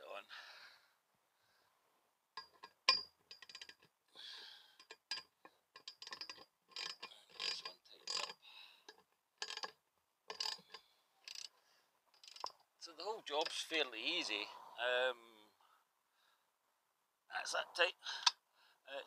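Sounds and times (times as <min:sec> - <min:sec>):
hand ratchet clicking: 0:02.4 - 0:03.8, 0:04.8 - 0:12.6.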